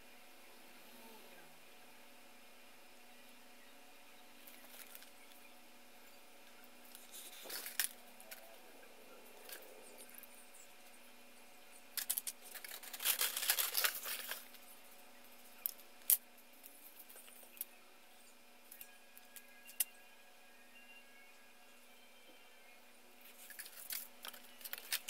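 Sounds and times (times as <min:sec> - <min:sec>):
rustling and crinkling: 0:04.4 - 0:05.5, 0:06.8 - 0:10.3, 0:11.9 - 0:17.7, 0:23.2 - 0:25.0
plastic parts clicking and tapping: 0:12.0 - 0:14.6, 0:23.4 - 0:25.0.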